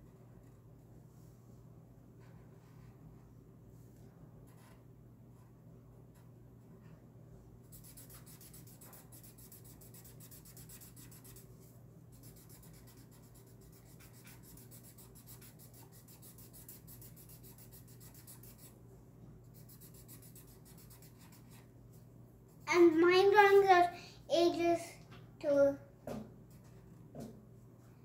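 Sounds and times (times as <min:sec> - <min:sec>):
marker scribbling on paper: 0:07.7 - 0:18.8, 0:19.5 - 0:21.7.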